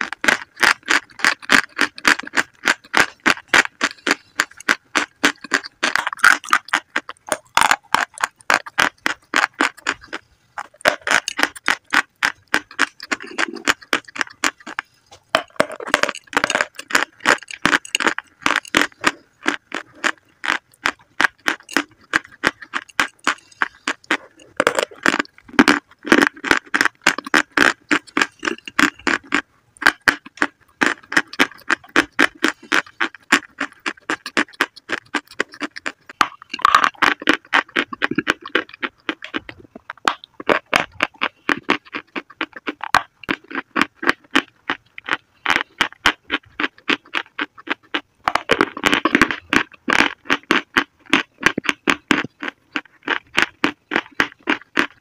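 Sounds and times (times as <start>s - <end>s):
chalk crunching while chewed: 0.0s - 55.0s.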